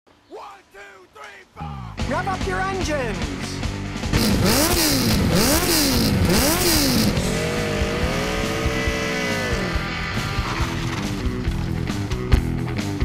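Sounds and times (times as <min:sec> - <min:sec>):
motorcycle engine revving: 0:03.9 - 0:12.2.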